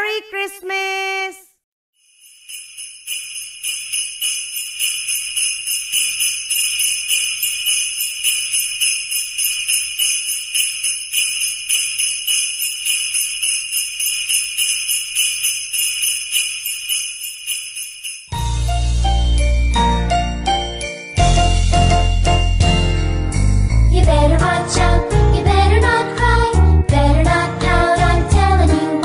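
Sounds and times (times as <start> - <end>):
sleigh bells jingling: 2.0 - 24.8.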